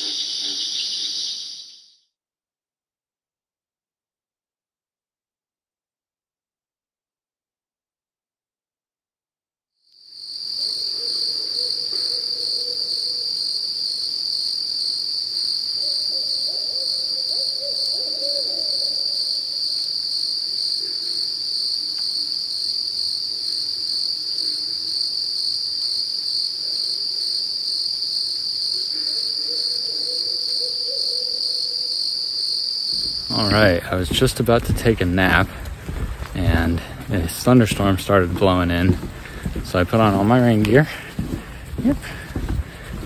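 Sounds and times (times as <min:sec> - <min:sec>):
high-pitched insect chorus: 0:00.0 - 0:02.0, 0:10.1 - 0:43.0
owls hooting: 0:10.6 - 0:13.4, 0:15.7 - 0:19.6, 0:28.8 - 0:33.5.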